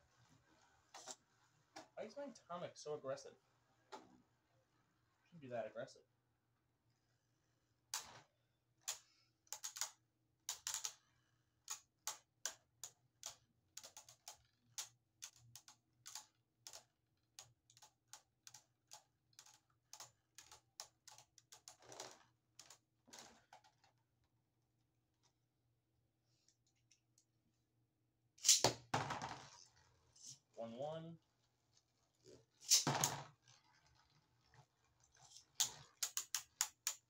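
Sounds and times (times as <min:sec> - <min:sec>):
spinning tops clashing: 0:28.4 - 0:28.7.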